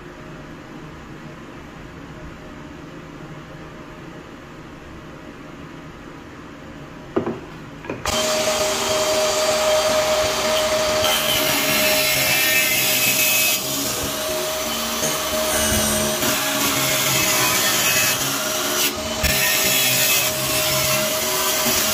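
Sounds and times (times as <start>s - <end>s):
saw blade cutting plywood: 8.1s - 21.9s
table saw whining: 8.1s - 21.9s.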